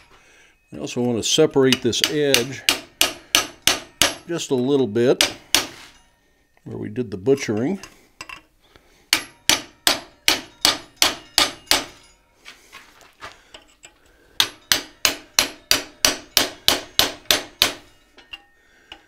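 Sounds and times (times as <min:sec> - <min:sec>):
hammer striking a chisel on metal: 0:01.5 - 0:06.0, 0:09.1 - 0:12.2, 0:13.5 - 0:19.0.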